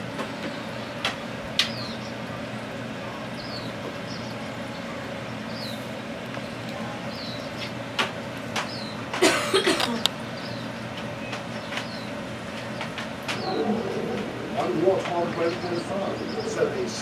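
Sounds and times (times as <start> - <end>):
aquarium air pump humming: 0.0 - 17.0
low sliding sounds: 13.3 - 16.3.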